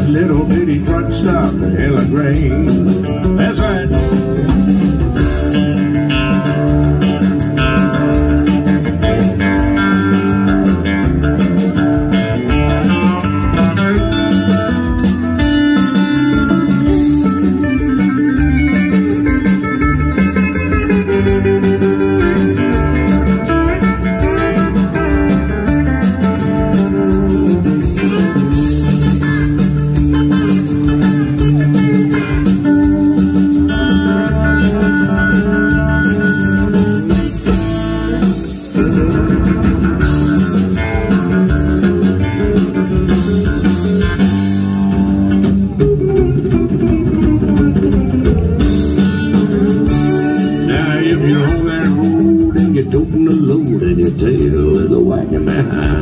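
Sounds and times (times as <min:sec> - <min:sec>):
bass: 0:00.0 - 0:56.0
drums: 0:00.0 - 0:56.0
electric guitar lead: 0:00.0 - 0:56.0.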